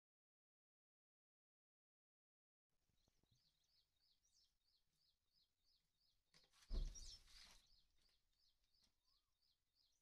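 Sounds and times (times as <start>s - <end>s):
faint bird chirping: 2.7s - 10.0s.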